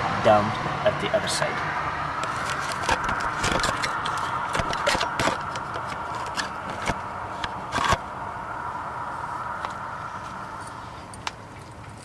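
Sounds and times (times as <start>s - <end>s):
faint background noise: 0.0s - 12.0s
handling clicks knocks and scrapes: 2.2s - 8.0s.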